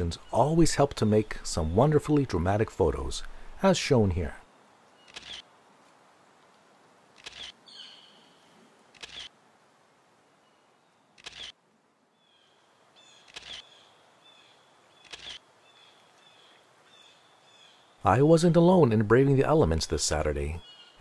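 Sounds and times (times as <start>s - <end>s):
birds chirping: 0.0s - 5.4s, 7.3s - 9.3s, 12.2s - 21.0s
camera shutter double clicks: 5.1s - 5.4s, 7.2s - 7.6s, 9.0s - 9.3s, 11.2s - 11.5s, 13.2s - 13.6s, 15.0s - 15.4s.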